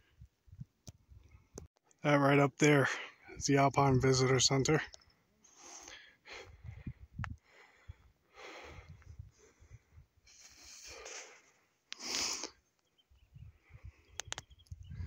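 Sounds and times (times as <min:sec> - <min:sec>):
person breathing hard: 0:05.6 - 0:12.6.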